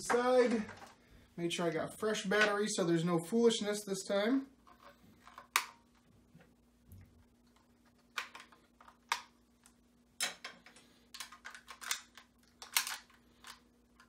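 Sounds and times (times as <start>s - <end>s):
plastic toy clicks and rattles: 10.3s - 13.6s.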